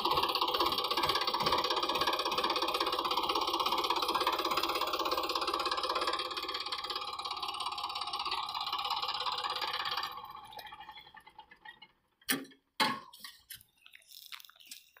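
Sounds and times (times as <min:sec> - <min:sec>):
tractor diesel engine clatter: 0:00.0 - 0:13.4.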